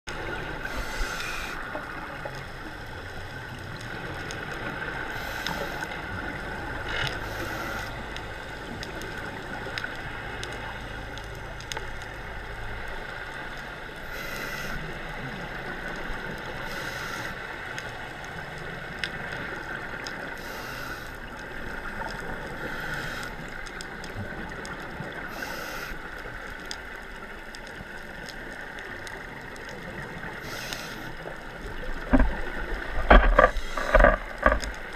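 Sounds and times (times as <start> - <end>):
exhaled bubbles hissing: 0.2 - 2.8, 3.8 - 11.0, 12.2 - 17.6, 18.2 - 26.4, 29.3 - 34.9
divers breathing through regulators: 0.6 - 1.6, 5.1 - 5.9, 7.1 - 8.0, 14.1 - 14.9, 16.6 - 17.4, 22.6 - 23.4, 30.4 - 31.2.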